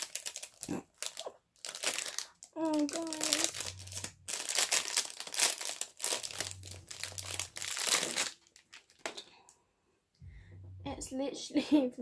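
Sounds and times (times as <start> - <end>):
packaging crinkling: 0.0 - 9.4.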